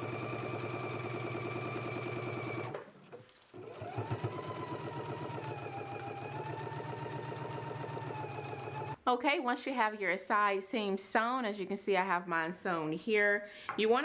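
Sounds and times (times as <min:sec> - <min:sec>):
electric sewing machine stitching: 0:00.0 - 0:02.9, 0:03.6 - 0:09.0.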